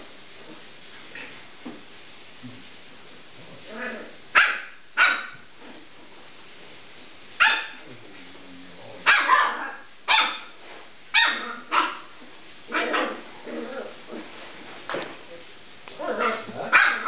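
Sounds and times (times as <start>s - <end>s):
puppy barking: 4.3s - 5.4s, 7.4s - 7.8s, 9.0s - 10.5s, 11.1s - 12.1s, 12.7s - 13.2s, 16.0s - 17.0s.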